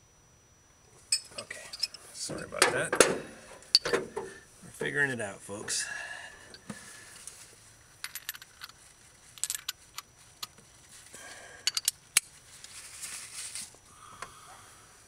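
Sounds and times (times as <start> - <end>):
metal hand tools clinking: 1.1 - 2.0.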